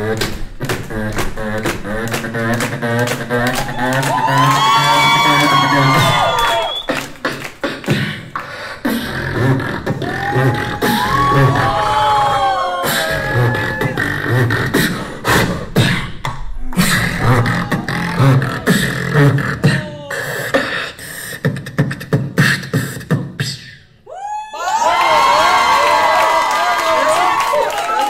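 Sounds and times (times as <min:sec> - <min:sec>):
beatboxing into a microphone: 0:00.0 - 0:24.1.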